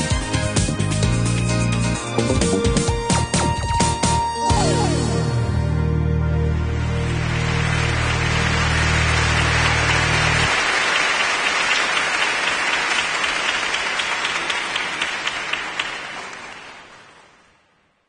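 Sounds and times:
music: 0.0s - 10.5s
audience applause: 6.7s - 17.7s.

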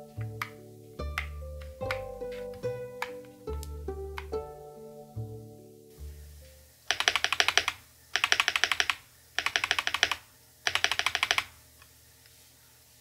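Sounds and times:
mechanical keyboard typing: 6.9s - 11.5s.

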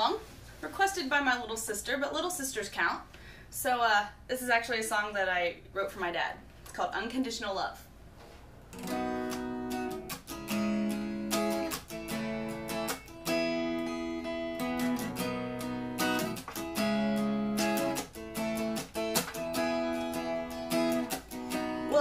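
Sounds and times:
acoustic guitar strumming chords: 8.7s - 22.0s.

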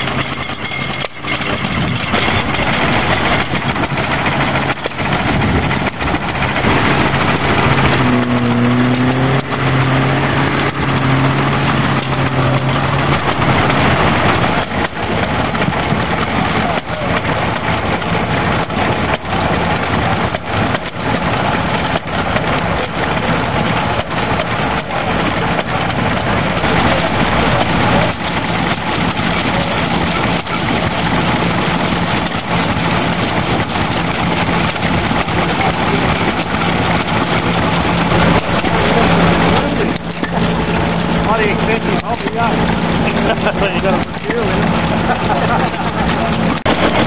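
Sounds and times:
low hum: 0.0s - 47.0s
stationary engines running: 0.0s - 47.0s.

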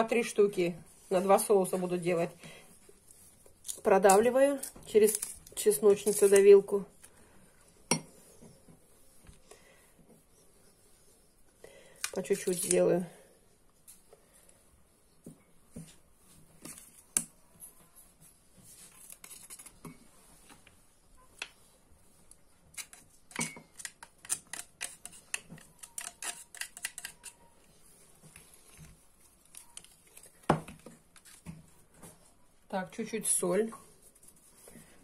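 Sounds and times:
knife scraping garlic press: 22.7s - 27.5s.

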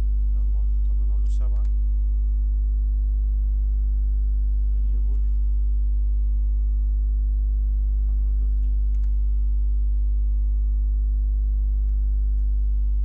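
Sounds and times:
electrical mains hum: 0.0s - 13.0s
computer keyboard clicks: 8.9s - 9.1s.

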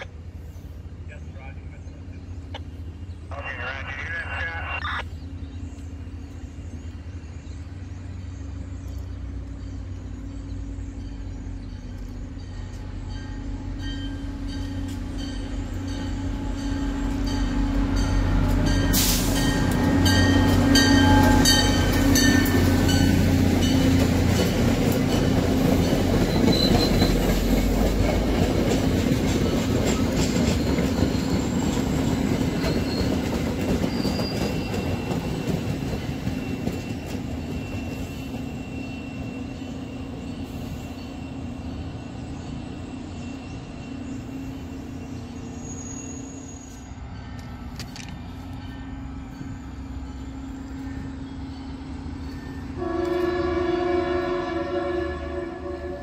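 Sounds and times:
locomotive engine drone: 0.0s - 56.0s
train bell ringing: 10.9s - 27.2s, 48.6s - 52.9s
train wheels clacking over rails: 11.1s - 38.8s.

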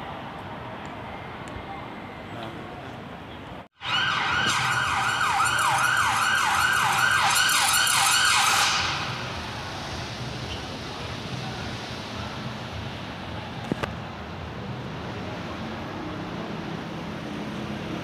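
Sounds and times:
traffic noise: 0.0s - 18.0s
police siren yelping: 3.8s - 9.3s.

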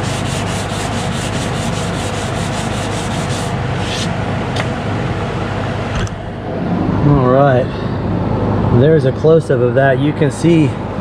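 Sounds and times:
sandpaper sanding strokes: 0.0s - 4.1s
scrape: 0.0s - 4.1s.

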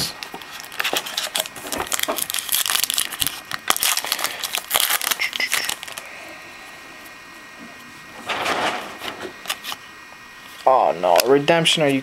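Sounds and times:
wrapper crinkling: 0.4s - 6.1s.

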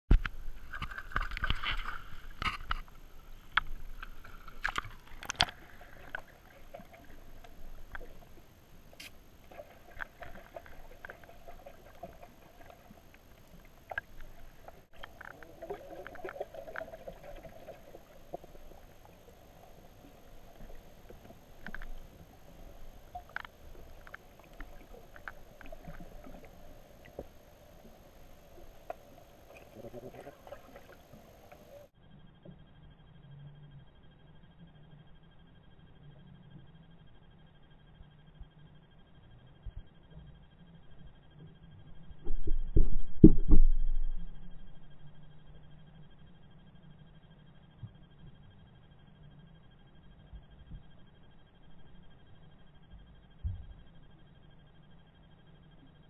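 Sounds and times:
underwater clicks and knocks: 0.1s - 8.2s, 42.2s - 44.3s
water splashing and sloshing: 0.1s - 31.9s
muffled underwater hum: 0.1s - 56.0s.

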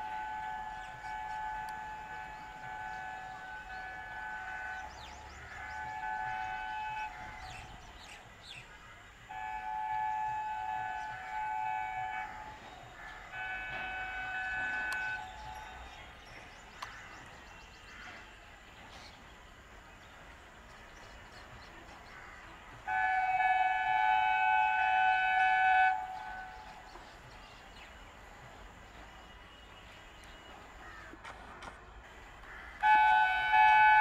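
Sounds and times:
two-tone train air horn: 0.0s - 8.1s, 9.3s - 15.8s, 22.8s - 26.9s, 32.8s - 34.0s
train rumble: 0.0s - 34.0s.

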